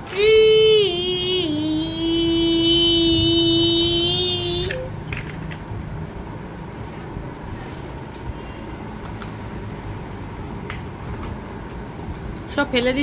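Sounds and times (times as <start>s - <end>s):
fan-like room noise: 0.0s - 13.0s.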